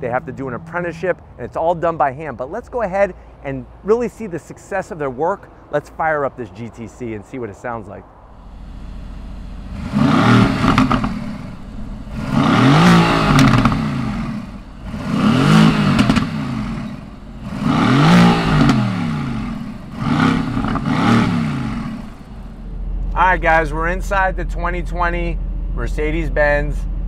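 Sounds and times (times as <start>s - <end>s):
car engine idling and revving: 8.2s - 27.0s.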